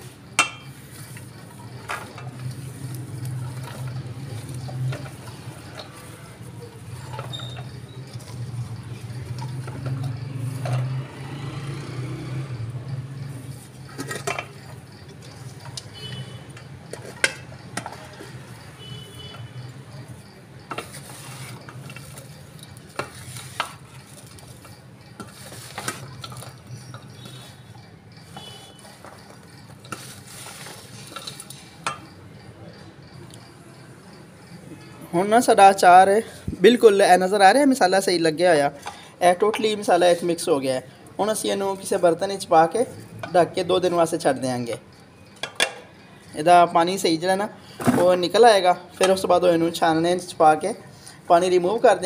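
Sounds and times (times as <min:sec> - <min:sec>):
vegetables rustling in steel tray: 0:00.0 - 0:11.0, 0:11.9 - 0:32.0
colander clinking on tray: 0:13.9 - 0:14.8.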